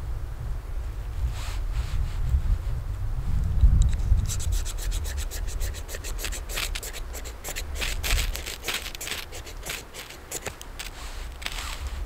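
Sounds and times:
ferro rod rasping strokes: 4.2s - 12.0s.

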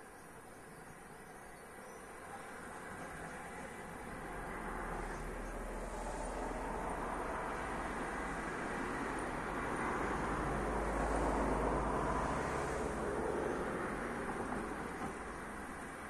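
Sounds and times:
vehicle passing: 4.1s - 15.6s.

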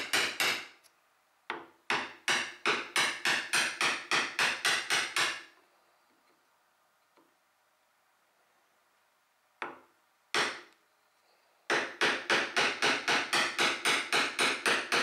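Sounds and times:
mallet striking chisel: 0.0s - 0.8s, 1.5s - 5.4s, 9.6s - 10.7s, 11.7s - 15.0s.

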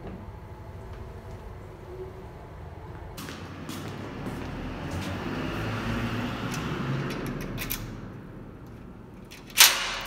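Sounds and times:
low rumbling background noise: 0.0s - 10.0s
bicycle lock clicks and rattles: 6.6s - 8.0s, 9.2s - 10.0s.

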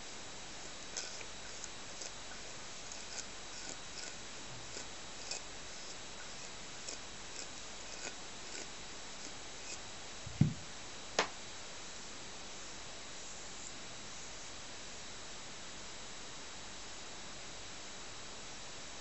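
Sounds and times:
low thump: 10.3s - 10.7s.

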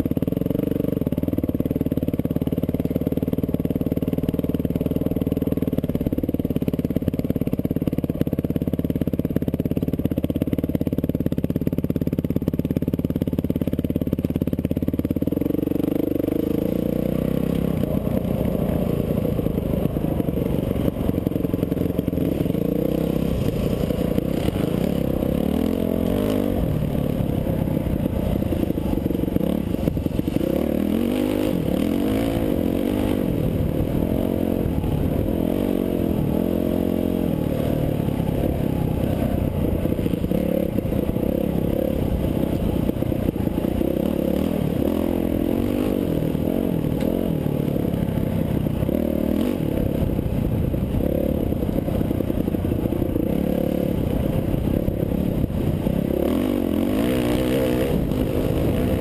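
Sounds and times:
bike rattling and scraping: 1.1s - 59.0s
dirt bike engine revving: 15.2s - 59.0s.

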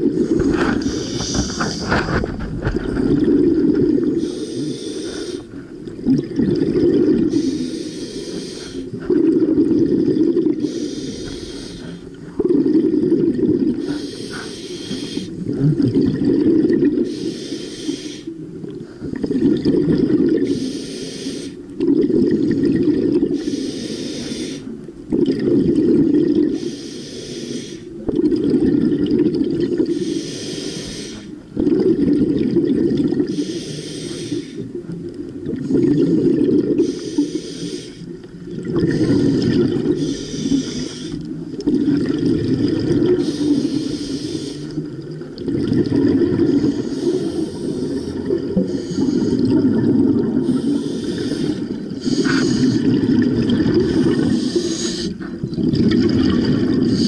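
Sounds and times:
exhaled air bubbling underwater: 0.0s - 57.0s
regulator inhale hiss: 0.6s - 2.1s, 4.2s - 5.7s, 7.3s - 9.1s, 10.6s - 12.0s, 13.8s - 15.4s, 17.0s - 18.4s, 20.4s - 21.6s, 23.4s - 24.8s, 26.5s - 27.9s, 29.9s - 31.4s, 33.3s - 34.7s, 36.8s - 38.2s, 38.9s - 41.3s, 43.2s - 44.8s, 46.5s - 49.5s, 50.4s - 52.8s, 54.2s - 55.4s.

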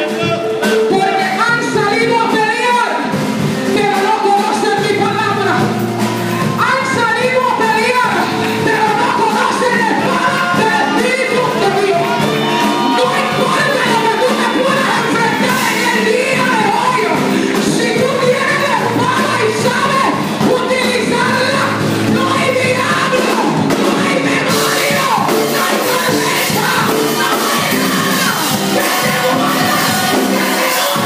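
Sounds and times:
band with drums and percussion: 0.0s - 31.0s
women singing into microphones: 6.6s - 31.0s.

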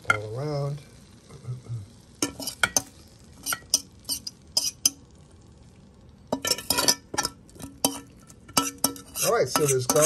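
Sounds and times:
metal fork scraping a pan: 2.2s - 5.0s, 6.3s - 10.0s.

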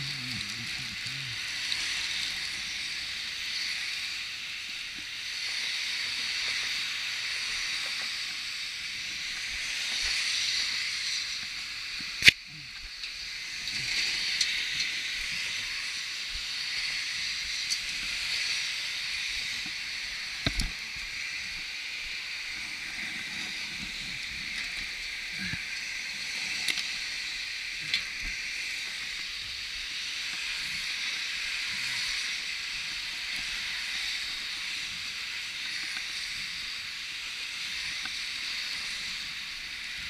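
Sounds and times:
steady hiss: 0.0s - 40.0s.

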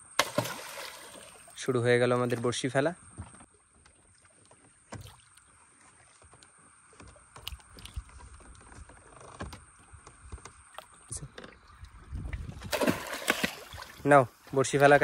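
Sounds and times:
water lapping against boat: 3.5s - 9.2s.

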